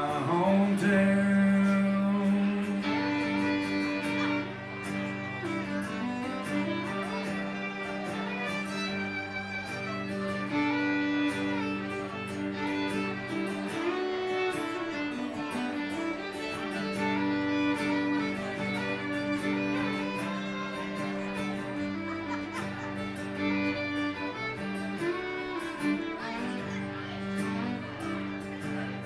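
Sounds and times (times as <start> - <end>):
country fiddle: 0.0 - 29.0
strummed acoustic guitar: 0.0 - 29.0.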